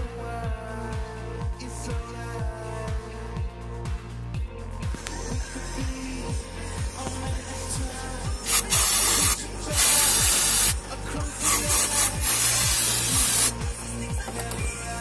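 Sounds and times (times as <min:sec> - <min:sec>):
aerosol spray hissing: 0:08.4 - 0:10.8, 0:11.4 - 0:13.6.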